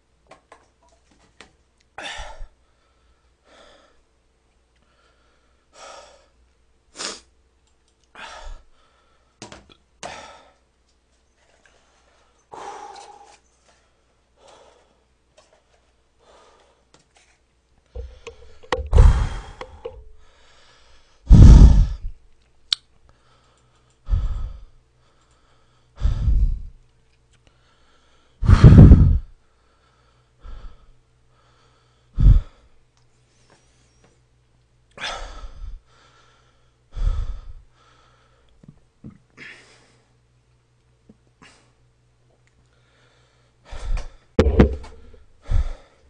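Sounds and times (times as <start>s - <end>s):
man breathing out hard: 12.5s - 13.4s, 18.0s - 22.1s, 24.0s - 24.8s, 26.0s - 26.8s, 29.9s - 32.7s, 35.0s - 38.4s, 42.9s - 46.0s.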